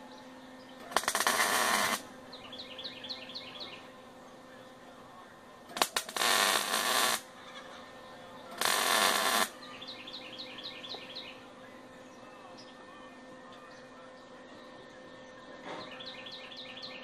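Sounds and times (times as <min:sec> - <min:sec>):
sharp clicks of electrode strike: 0:00.8 - 0:02.1, 0:05.7 - 0:07.2, 0:08.6 - 0:09.5
welding arc crackling: 0:00.8 - 0:02.1, 0:05.6 - 0:07.3, 0:08.5 - 0:09.6.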